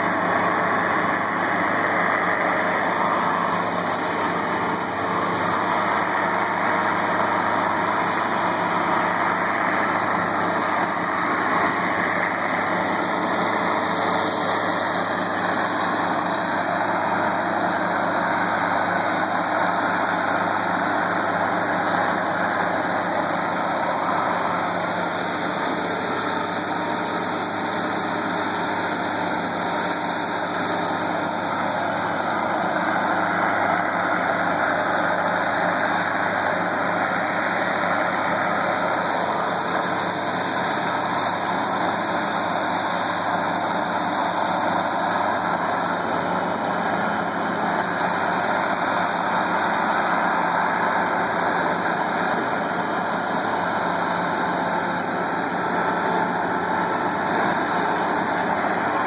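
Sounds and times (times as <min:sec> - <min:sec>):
power trowel engine running: 0:00.0 - 0:59.0.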